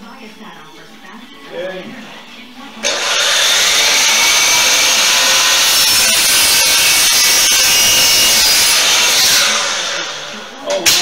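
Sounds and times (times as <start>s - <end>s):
miter saw cutting wood: 2.8s - 11.0s.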